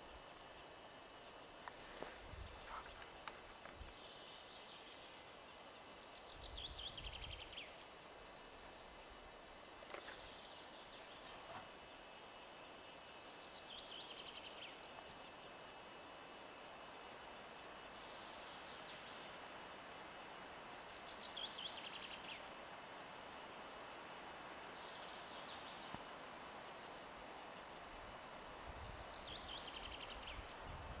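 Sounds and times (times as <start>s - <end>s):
bird singing warble: 2.4s - 8.5s, 9.9s - 15.6s, 20.6s - 22.6s, 28.8s - 30.6s.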